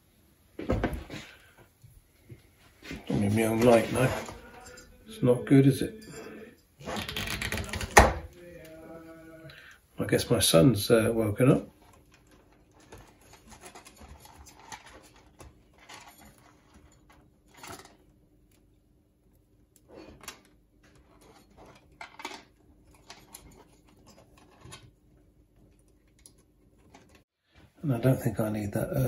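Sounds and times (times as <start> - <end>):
faint steady hum: 0.0 - 29.0
wires rustling and clicking: 6.7 - 8.8, 11.4 - 27.3.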